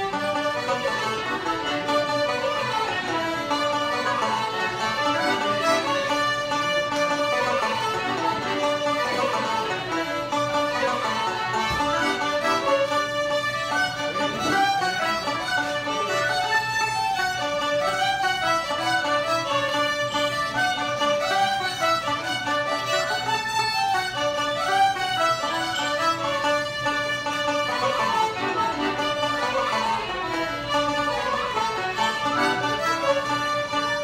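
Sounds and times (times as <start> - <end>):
banjo: 0.0 - 34.0
button accordion: 0.0 - 34.0
fiddles: 0.0 - 34.0.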